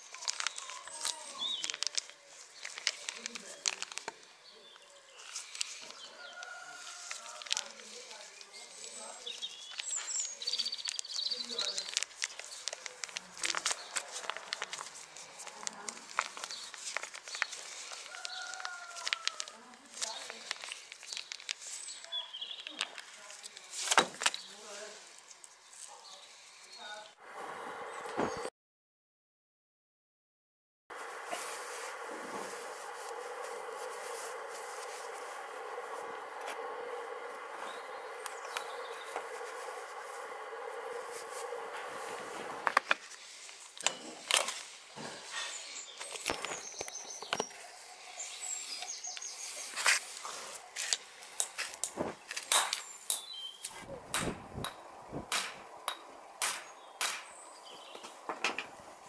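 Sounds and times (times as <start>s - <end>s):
foil sachet crinkling: 0.0s - 25.5s
background hiss: 31.0s - 59.0s.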